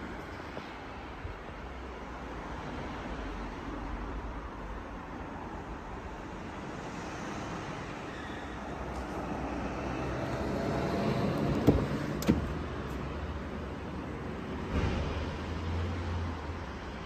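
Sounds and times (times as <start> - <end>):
car door handle clicks: 11.4 - 12.6.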